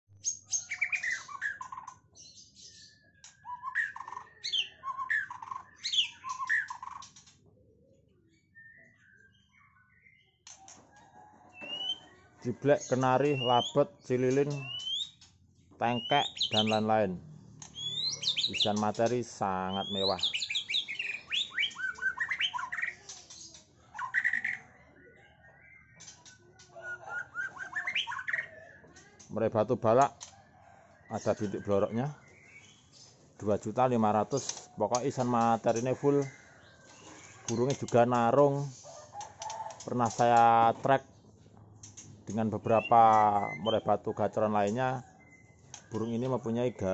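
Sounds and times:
bird singing whistles and trills: 0.2 - 7.1, 8.4 - 10.4, 11.3 - 12.2, 12.8 - 15.2, 15.9 - 16.9, 17.6 - 18.9, 19.6 - 23.4, 26.8 - 28.7, 42.4 - 43.9, 45.0 - 46.4.

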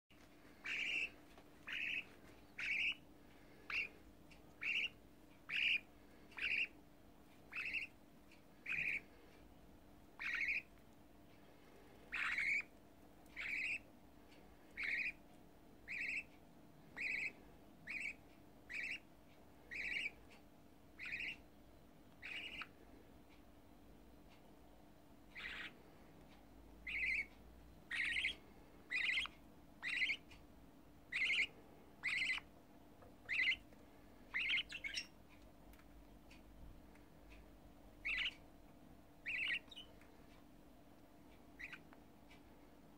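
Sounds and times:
budgerigar chick calling: 0.5 - 6.9, 7.5 - 8.0, 8.6 - 9.2, 10.2 - 10.8, 12.1 - 12.7, 13.3 - 13.9, 14.7 - 15.2, 15.8 - 20.3, 20.9 - 21.5, 22.2 - 22.9, 25.3 - 25.9, 26.8 - 30.4, 31.1 - 32.5, 33.2 - 35.2, 38.0 - 38.5, 39.2 - 40.0, 41.5 - 42.0.

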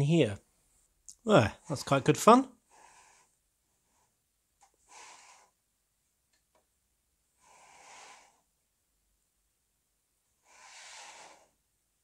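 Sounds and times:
soft breaths: 2.5 - 5.8, 7.2 - 8.6, 10.2 - 11.8.

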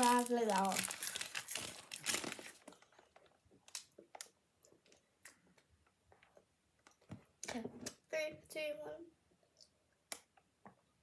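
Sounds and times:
crisp packet crinkling: 0.0 - 4.3.

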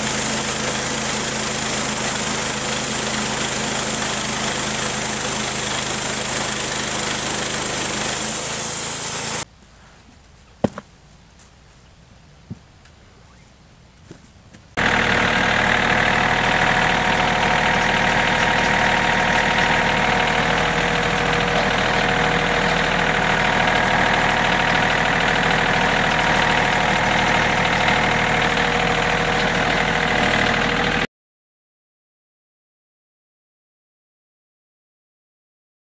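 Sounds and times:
gas engine running: 0.0 - 9.5, 14.8 - 31.1.

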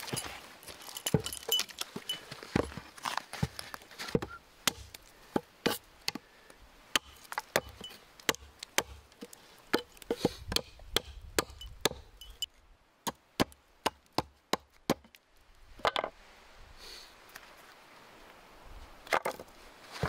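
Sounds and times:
hatchet chopping wood: 4.1 - 6.3, 6.9 - 15.2.

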